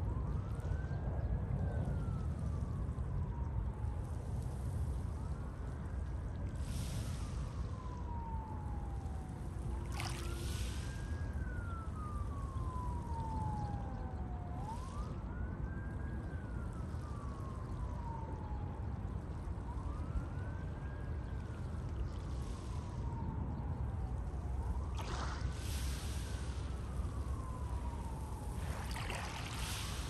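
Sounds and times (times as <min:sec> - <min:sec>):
emergency siren wailing: 0:00.0 - 0:30.0
sea waves: 0:28.7 - 0:30.0.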